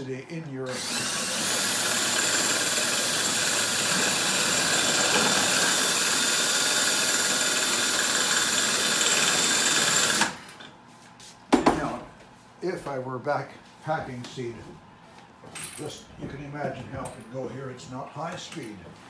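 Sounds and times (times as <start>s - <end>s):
machine motor running: 0.7s - 10.6s.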